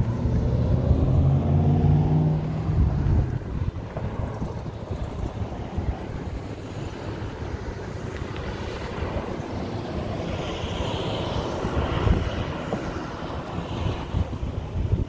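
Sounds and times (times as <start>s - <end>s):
vehicle passing: 0.0s - 14.7s
street traffic rumble: 0.0s - 15.0s
wind buffeting microphone: 0.0s - 15.0s.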